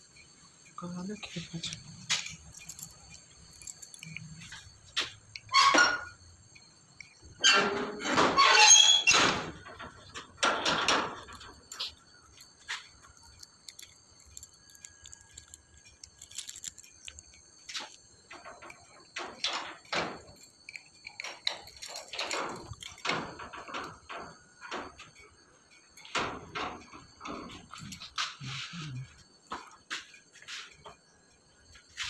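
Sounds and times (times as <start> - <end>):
metal bolt knocks and scrapes: 1.7 - 25.3
rusty gate squealing and clanking: 3.6 - 12.1.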